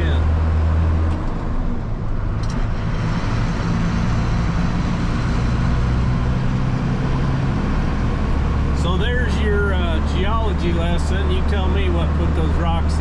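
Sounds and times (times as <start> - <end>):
road noise: 0.0 - 13.0
vehicle engine drone: 0.0 - 13.0.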